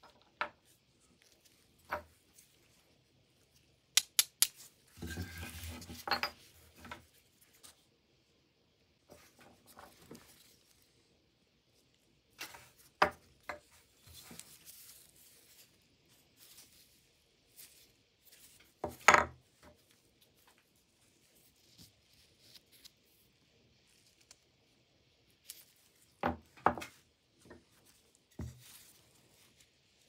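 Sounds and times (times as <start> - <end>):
tools tapping and knocking: 4.0 - 7.0, 12.5 - 13.7, 26.2 - 27.6.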